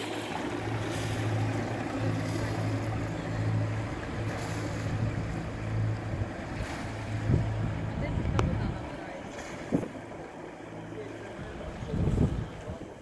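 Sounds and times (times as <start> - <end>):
boat engine running at low revs: 0.0 - 13.0
wind noise on microphone: 4.9 - 8.8, 9.5 - 10.0, 11.7 - 13.0.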